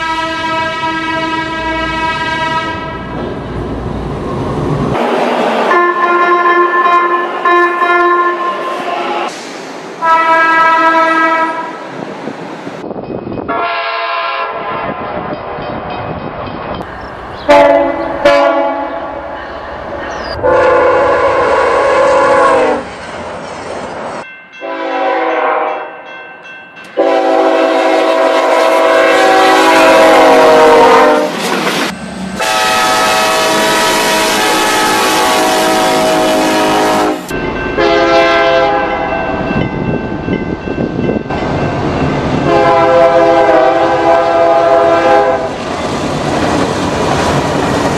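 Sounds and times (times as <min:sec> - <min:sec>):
train air horns: 0:00.0 - 0:03.1, 0:05.7 - 0:09.4, 0:10.0 - 0:11.8, 0:13.5 - 0:15.1, 0:17.5 - 0:19.4, 0:20.3 - 0:22.9, 0:24.6 - 0:25.9, 0:27.0 - 0:31.5, 0:32.4 - 0:39.2, 0:42.5 - 0:45.6.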